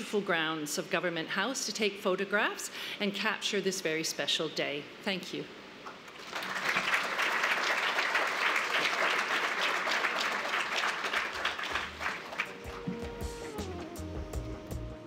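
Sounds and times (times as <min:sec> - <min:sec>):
audience applauding: 0:06.1 - 0:14.2
music: 0:11.7 - 0:15.0.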